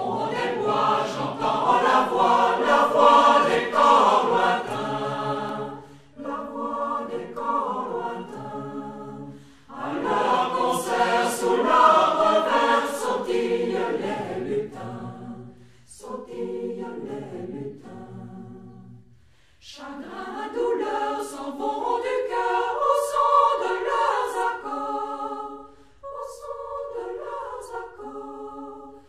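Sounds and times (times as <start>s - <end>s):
choir singing unaccompanied: 0.0s - 29.0s.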